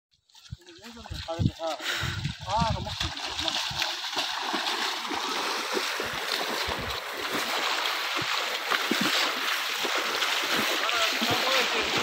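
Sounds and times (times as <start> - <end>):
footsteps wading: 0.1 - 12.0
stream water rushing: 2.5 - 12.0.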